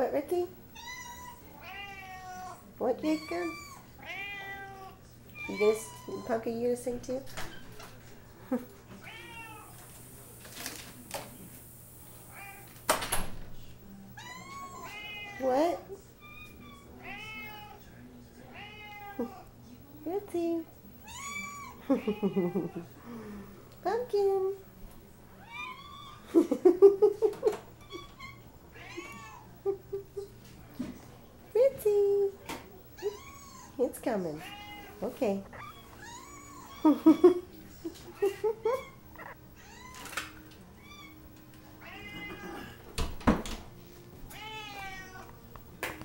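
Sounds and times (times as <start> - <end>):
cat meowing: 0.7 - 6.4, 9.0 - 9.8, 12.3 - 12.7, 14.2 - 15.4, 16.2 - 17.8, 18.5 - 19.4, 21.0 - 22.7, 25.4 - 26.2, 27.8 - 29.5, 33.0 - 33.8, 34.4 - 37.3, 38.2 - 40.2, 40.8 - 41.2, 41.8 - 42.8, 44.3 - 45.3.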